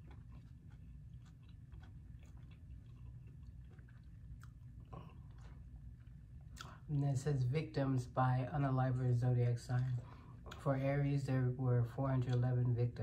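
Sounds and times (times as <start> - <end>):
person chewing: 0.0 - 6.9.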